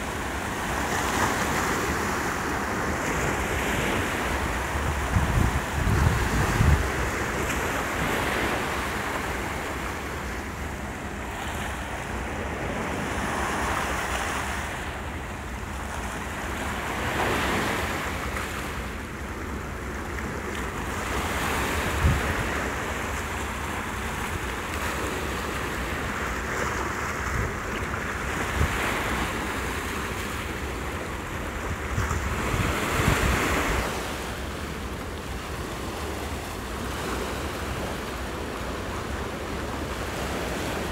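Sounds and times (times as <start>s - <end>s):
waves breaking over rocks: 0.0s - 40.9s
wind on microphone: 3.3s - 8.6s, 21.4s - 23.0s, 31.6s - 34.2s.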